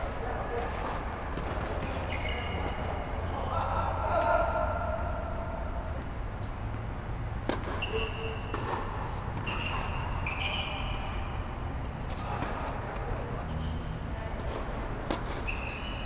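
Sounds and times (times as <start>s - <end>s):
steady low hum: 0.0s - 16.0s
tennis shoes squeaking on court: 0.5s - 3.6s, 7.5s - 16.0s
tennis ball struck by racket: 7.4s - 7.8s, 8.5s - 9.5s.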